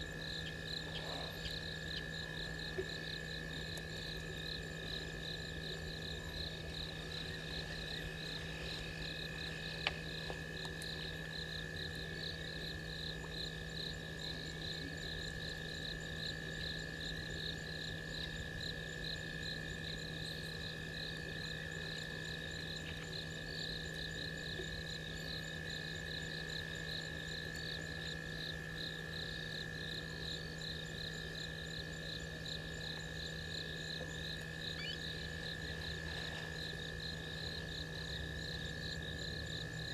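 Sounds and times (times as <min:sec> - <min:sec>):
constant high drone: 0:00.0 - 0:39.9
crickets chirping: 0:00.0 - 0:39.9
low steady hum: 0:00.0 - 0:39.9.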